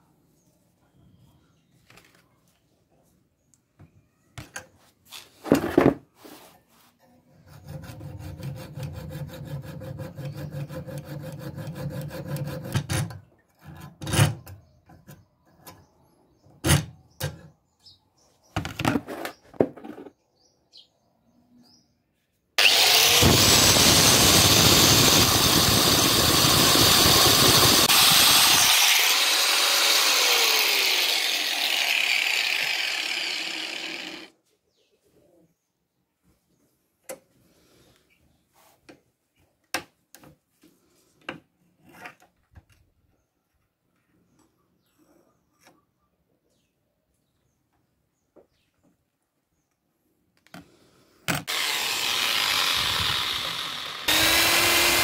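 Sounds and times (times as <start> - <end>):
rapid sawing on metal: 7.4 - 13.1, 22.6 - 34.3, 51.4 - 55.0
corded power tool running: 22.6 - 34.3, 51.4 - 55.0.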